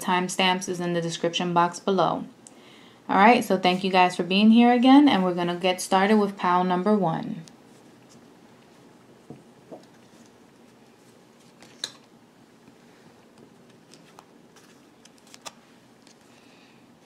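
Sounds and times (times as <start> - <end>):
handling cards: 9.6 - 16.4.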